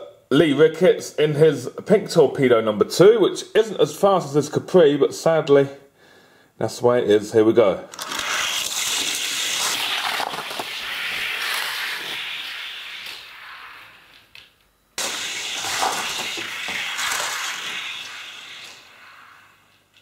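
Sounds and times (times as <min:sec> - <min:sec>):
toy cars rolling on plastic track: 0:07.9 - 0:14.3, 0:15.0 - 0:18.9.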